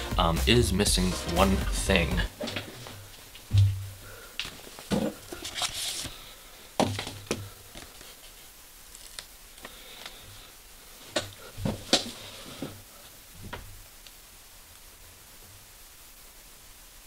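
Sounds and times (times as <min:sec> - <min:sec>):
paper rustling: 0:04.4 - 0:06.3, 0:06.9 - 0:09.3.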